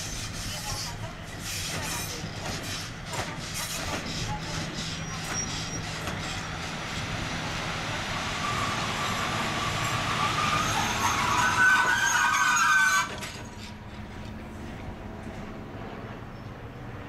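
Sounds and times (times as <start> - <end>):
train wheels rumbling on rails: 0.0 - 17.0
high-pitched metallic squeal: 3.6 - 6.5, 8.4 - 13.8.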